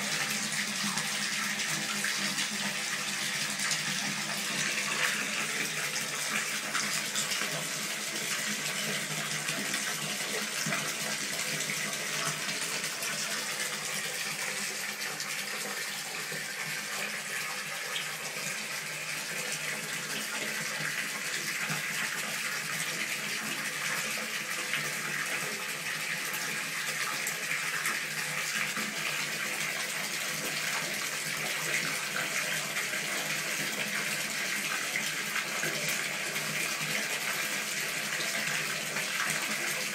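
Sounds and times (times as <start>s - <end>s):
tap water pouring into bathtub: 0.0s - 39.9s.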